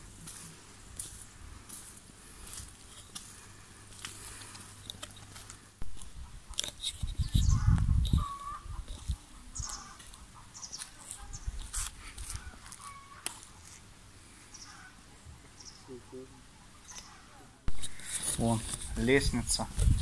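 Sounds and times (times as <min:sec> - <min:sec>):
birds chirping: 0:02.2 - 0:13.6, 0:14.3 - 0:20.0
low clucking bird calls: 0:04.3 - 0:20.0.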